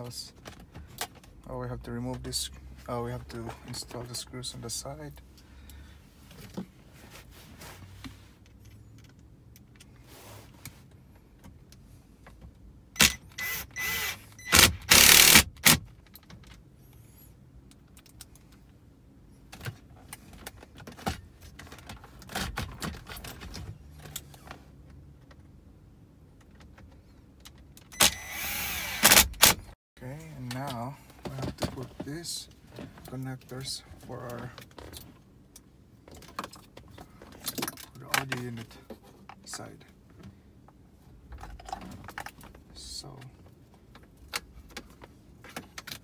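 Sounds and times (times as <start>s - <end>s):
cordless drill driving screws: 13.0s - 15.8s, 28.0s - 29.6s.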